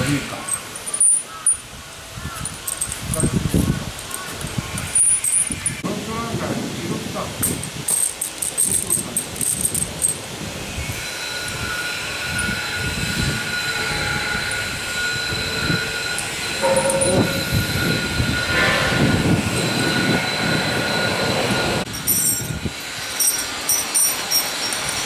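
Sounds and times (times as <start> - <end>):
steel chains clinking: 0.0 - 1.7, 2.3 - 5.8, 7.4 - 10.2, 16.0 - 18.0, 21.9 - 25.0
steady high tone: 10.9 - 23.6.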